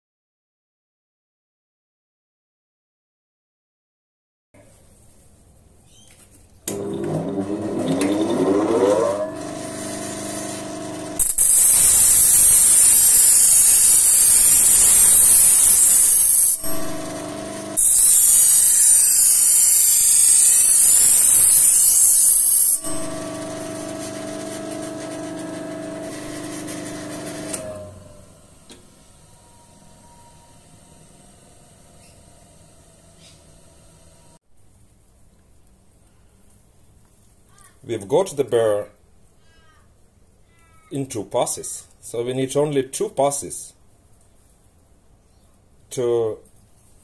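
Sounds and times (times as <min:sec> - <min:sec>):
bench grinder whining and humming: 0:06.7 - 0:34.4
knife hissing on grinding wheel: 0:08.2 - 0:28.4.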